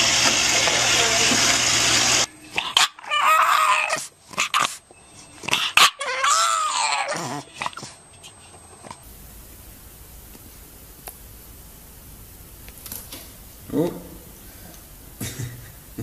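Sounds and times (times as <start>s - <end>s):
dog whining: 2.5s - 9.0s
faint steady hiss: 9.0s - 16.0s.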